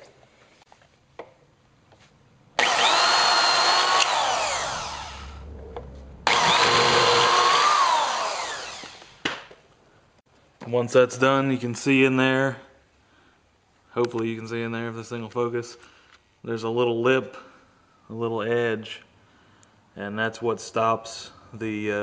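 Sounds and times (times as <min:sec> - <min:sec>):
electric drill whining: 0:02.6 - 0:09.3.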